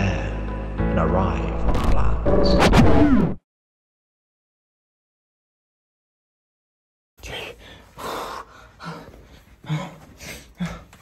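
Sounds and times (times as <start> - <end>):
man panting hard: 7.2 - 11.0.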